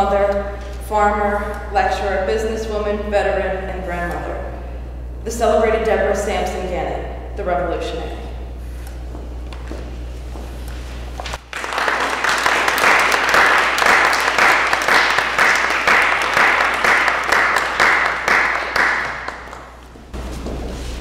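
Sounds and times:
audience applauding: 0:11.2 - 0:19.8.

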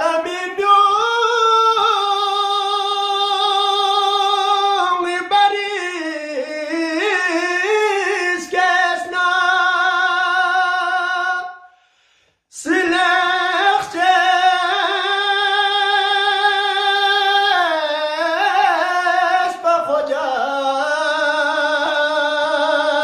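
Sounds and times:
man singing unaccompanied: 0:00.0 - 0:11.7, 0:12.5 - 0:23.0.

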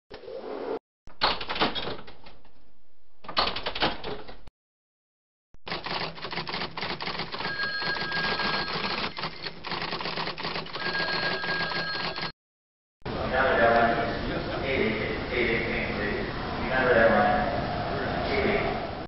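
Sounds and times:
typing on keys: 0:05.7 - 0:12.3.

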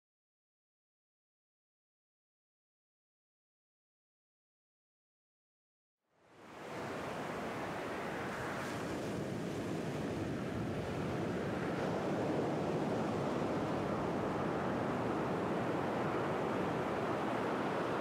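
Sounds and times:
ocean waves washing ashore: 0:06.3 - 0:18.0.

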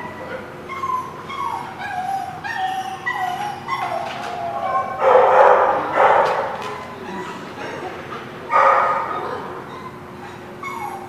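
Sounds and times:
dog whining and yipping: 0:00.0 - 0:05.2, 0:08.9 - 0:11.0
dog barking roughly: 0:04.7 - 0:06.6, 0:08.5 - 0:09.5.

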